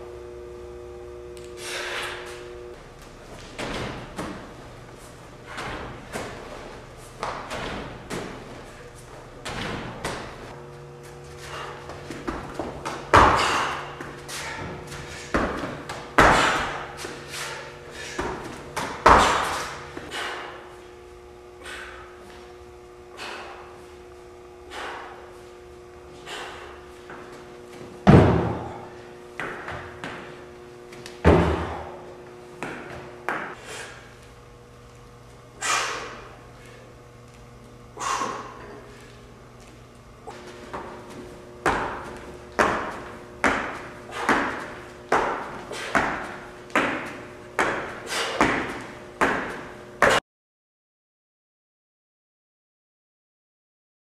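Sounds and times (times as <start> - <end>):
forceful breathy exhale: 1.6 - 2.3, 35.6 - 36.3, 38.0 - 38.6
feet landing on gym mat: 1.7 - 20.6, 24.7 - 34.3, 38.0 - 50.2
heavy thump of landing on box: 7.2 - 8.6, 28.0 - 30.3, 31.2 - 32.0.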